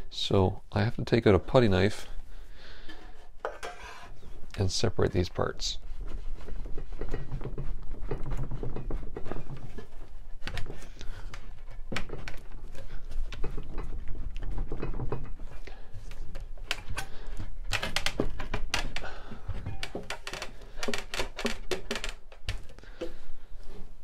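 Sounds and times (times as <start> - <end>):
wooden chair knocking and creaking: 6.4 - 15.6, 16.5 - 23.2.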